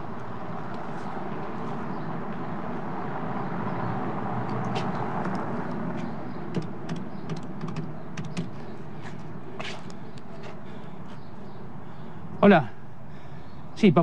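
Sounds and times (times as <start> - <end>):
street traffic noise: 0.0 - 14.0
payphone buttons clicking: 6.5 - 8.5.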